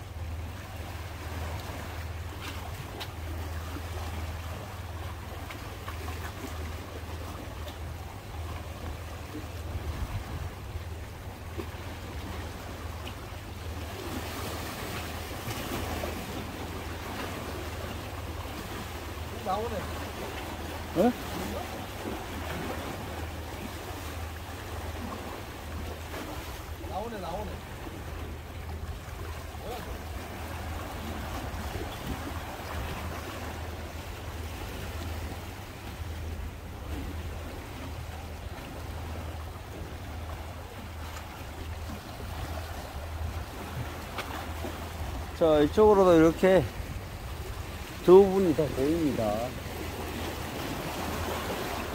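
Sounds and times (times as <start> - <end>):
small waves washing against rocks: 11.2 - 51.9.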